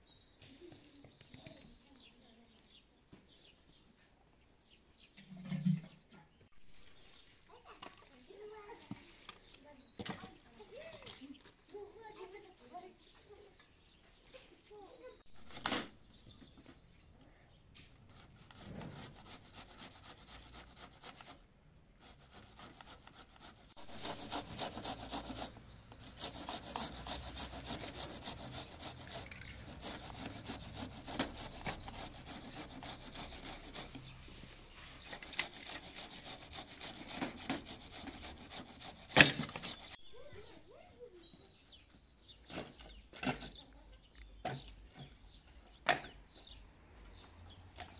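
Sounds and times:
rapid scraping strokes: 18.0s - 21.4s, 22.0s - 40.0s.

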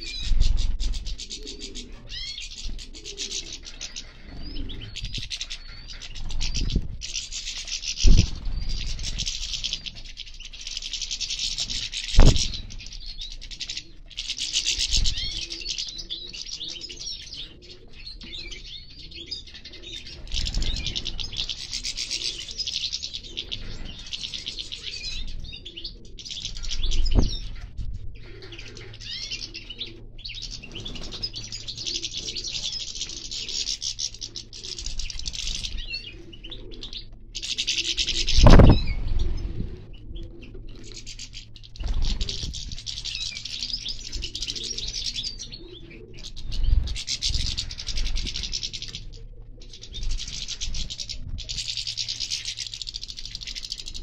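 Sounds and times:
birds twittering and chirping: 0.0s - 54.0s
loud low thumps: 12.2s - 12.7s.

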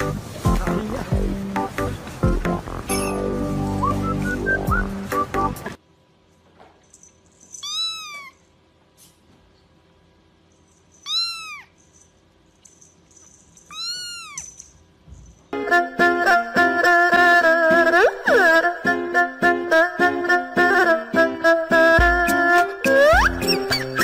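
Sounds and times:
music: 0.0s - 5.8s, 15.6s - 24.0s
kitten mewing: 11.0s - 11.7s, 13.7s - 14.5s.

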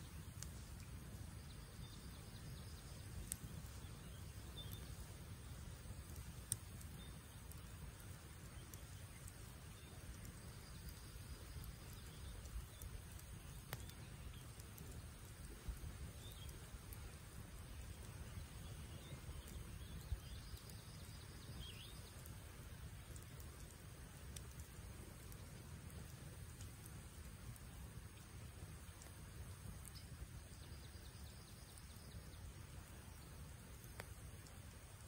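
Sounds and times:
campfire burning: 0.0s - 35.0s
faint bird chirps: 0.0s - 35.0s
logs popping: 2.6s - 30.2s.

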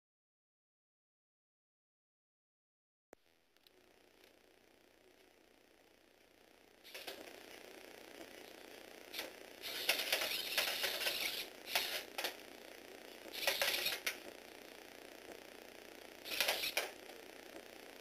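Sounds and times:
toy robot motor and gears clattering: 6.8s - 7.2s, 9.1s - 12.4s, 13.2s - 14.3s, 16.2s - 17.1s.

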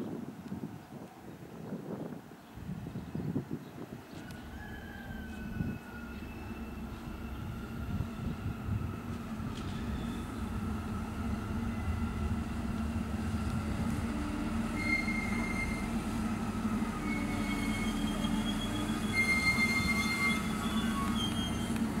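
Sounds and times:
diesel train engine humming: 4.3s - 22.0s
high-pitched wheel squeals: 4.5s - 10.4s, 14.7s - 15.9s, 16.8s - 21.9s.

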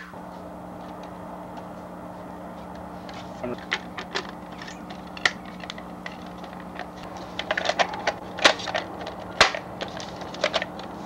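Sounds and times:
hard plastic clicking and clattering: 3.5s - 10.9s.

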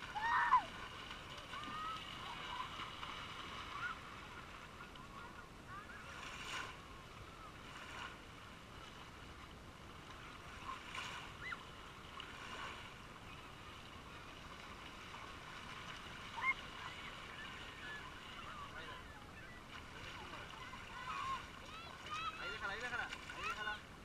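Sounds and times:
small waves washing on sand: 0.0s - 24.0s
distant high-pitched cries: 0.1s - 0.7s.

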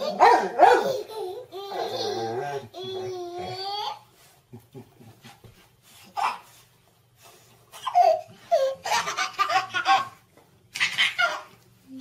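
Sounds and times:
baby laughing: 0.0s - 4.0s, 7.7s - 11.6s.

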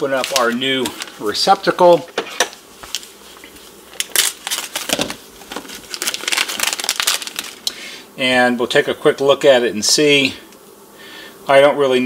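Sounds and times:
plastic packaging crinkling: 0.0s - 1.8s, 2.8s - 7.8s.

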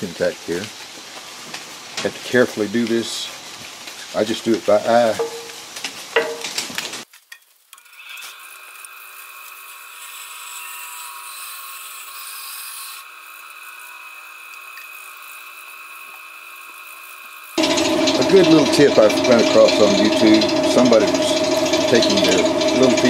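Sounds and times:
bandsaw cutting wood: 7.8s - 23.0s.

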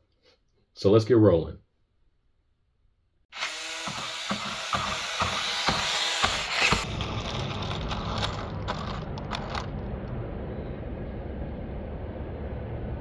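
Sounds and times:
toy truck electric motor whirring: 3.3s - 9.8s
low outdoor rumble: 6.8s - 13.0s.

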